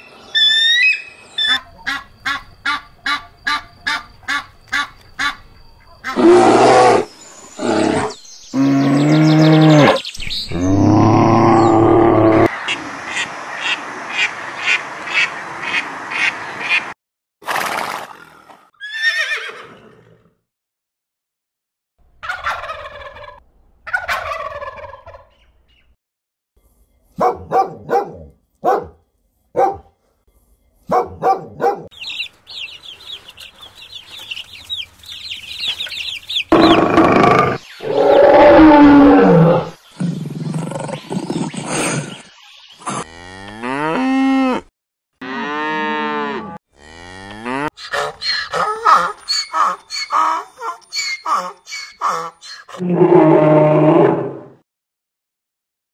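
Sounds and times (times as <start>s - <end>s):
long loud falling animal call: 7.8s - 12.5s, 36.4s - 39.8s
ducks quacking: 12.6s - 16.9s, 32.0s - 37.0s, 47.8s - 52.8s
dog barking: 27.2s - 30.0s, 30.9s - 31.9s
drawn-out falling animal calls: 32.0s - 42.1s, 46.9s - 53.8s.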